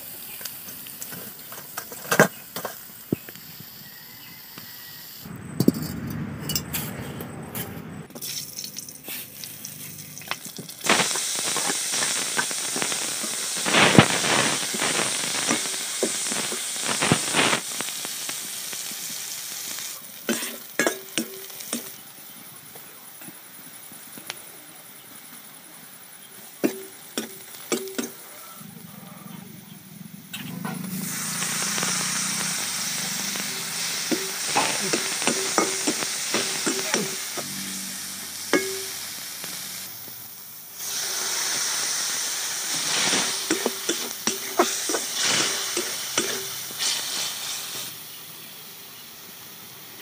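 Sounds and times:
onions sizzling in hot oil: 0:00.0 - 0:05.3, 0:08.1 - 0:28.9, 0:29.5 - 0:50.0
metal ladle scraping a pan: 0:33.3 - 0:39.1, 0:42.8 - 0:47.0.

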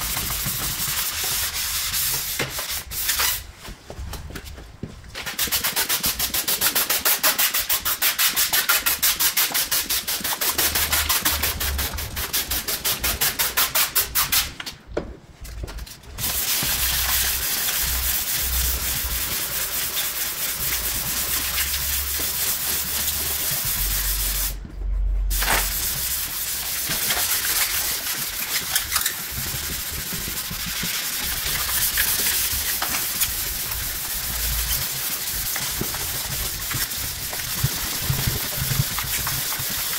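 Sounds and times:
sandpaper rubbing on metal: 0:00.0 - 0:03.4, 0:05.3 - 0:14.5, 0:16.2 - 0:24.6, 0:25.3 - 0:39.9.

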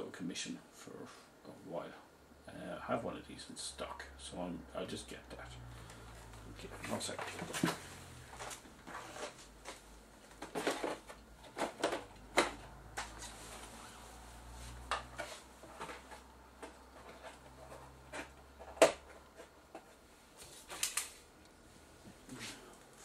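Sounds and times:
clicks and knocks of handling: 0:06.7 - 0:13.4.

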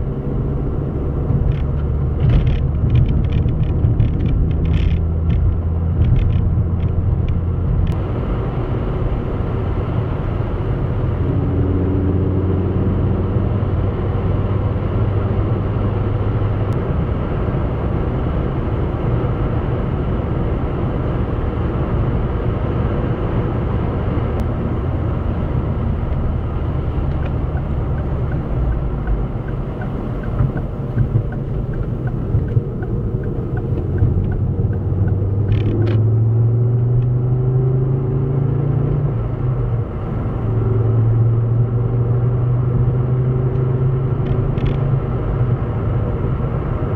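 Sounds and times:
car engine and tyre rumble: 0:00.0 - 0:46.9
light regular ticking: 0:27.1 - 0:36.0.

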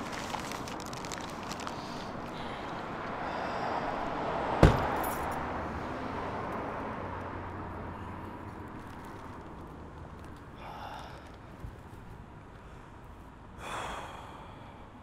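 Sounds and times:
car door slamming: 0:04.6 - 0:05.1.

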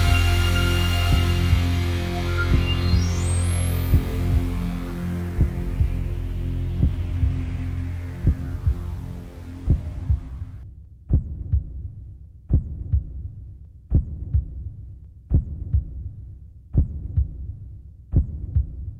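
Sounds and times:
held music chord: 0:00.0 - 0:10.6
slow heartbeat thumps: 0:00.0 - 0:18.9.

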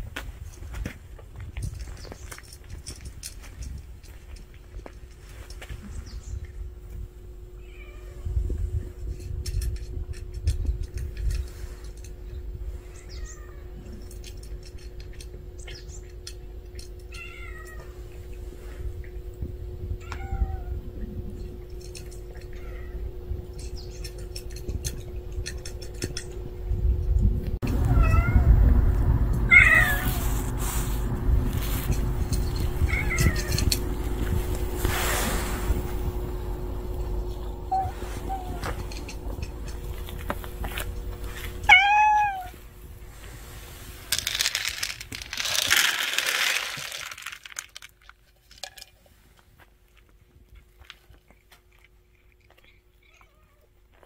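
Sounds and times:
faint steady hum: 0:00.0 - 0:54.0
cats meowing: 0:07.6 - 0:08.3, 0:12.8 - 0:14.1, 0:17.0 - 0:18.1, 0:20.0 - 0:20.8, 0:27.7 - 0:28.6, 0:29.5 - 0:30.4, 0:32.7 - 0:33.8, 0:41.4 - 0:42.6, 0:52.5 - 0:53.9
low rumble: 0:17.8 - 0:41.7.

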